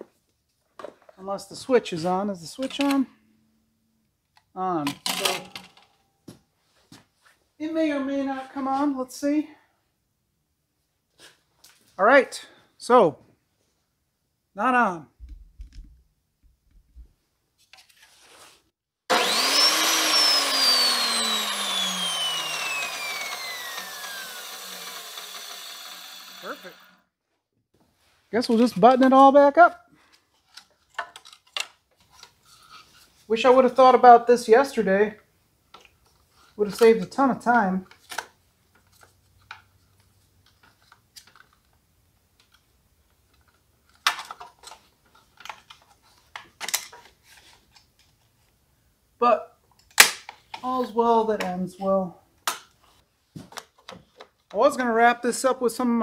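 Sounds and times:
chop saw winding down: 19.1 - 27.0.

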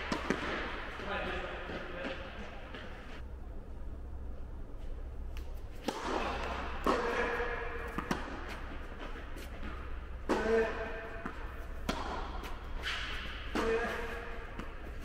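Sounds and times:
tennis ball hit by rackets: 0.0 - 1.0, 5.8 - 15.0
tennis ball bouncing on court: 0.0 - 3.0, 5.8 - 15.0.

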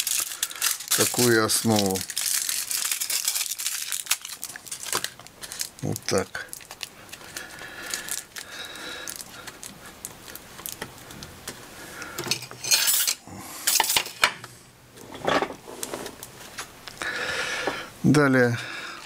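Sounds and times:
aluminium foil crinkling: 0.0 - 11.6.

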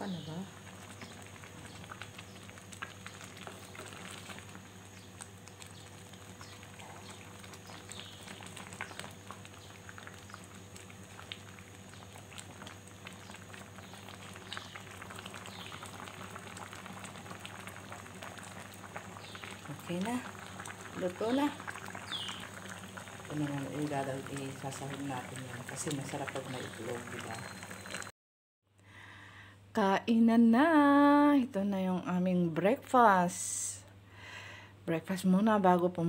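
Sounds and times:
soup bubbling and popping: 0.0 - 28.1
wooden spatula stirring: 0.8 - 15.9.

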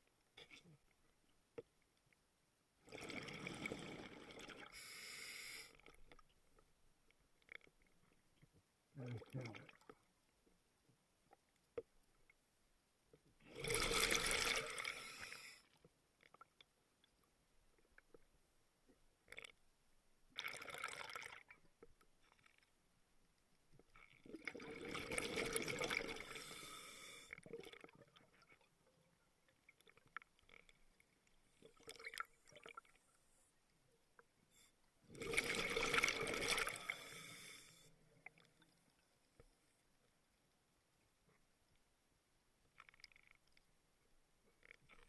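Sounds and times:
faint clicks and crackles: 5.6 - 12.5, 13.1 - 19.7, 20.3 - 26.5, 27.2 - 37.0, 42.6 - 45.0
underwater exhaled bubbles rushing: 24.2 - 26.4, 35.1 - 37.0.

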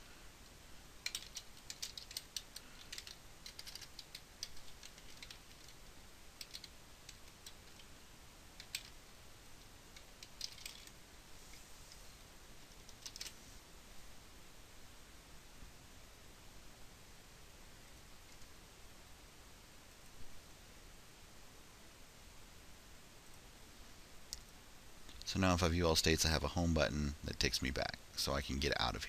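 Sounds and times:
typing on computer keyboard: 1.0 - 5.8, 6.4 - 7.9, 8.6 - 9.0, 10.0 - 10.9.

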